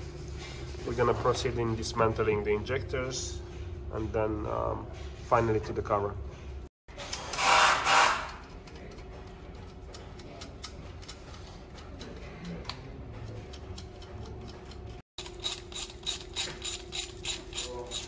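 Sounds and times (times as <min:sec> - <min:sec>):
hand tools on engine: 0:09.8 - 0:18.0
quick ratchet clicks: 0:15.2 - 0:18.0.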